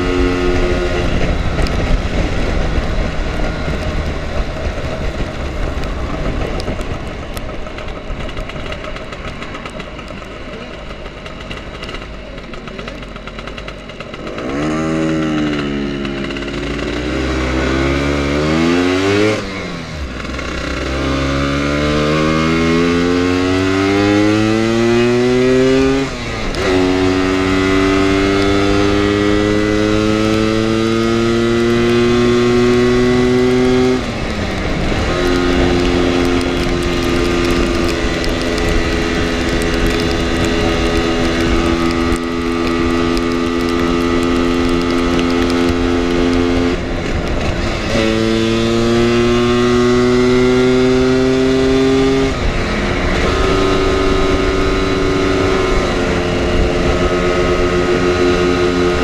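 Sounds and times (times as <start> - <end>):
wind rush: 0.0 - 10.0, 17.0 - 59.0
scooter engine accelerating: 0.0 - 59.0.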